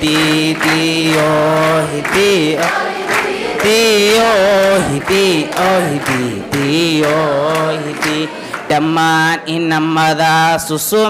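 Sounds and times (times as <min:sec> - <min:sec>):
man chanting into a microphone: 0:00.0 - 0:02.7, 0:03.6 - 0:11.0
short breaths: 0:08.3 - 0:08.7.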